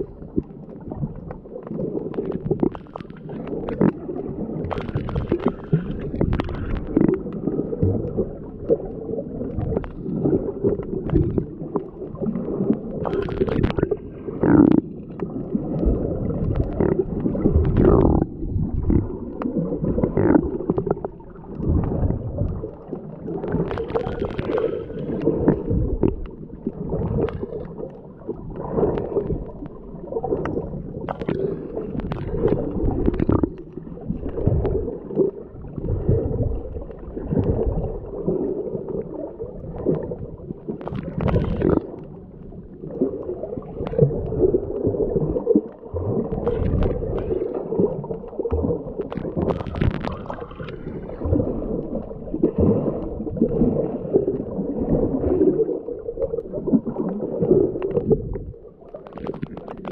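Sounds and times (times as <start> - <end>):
muffled water sloshing: 0.0 - 59.9.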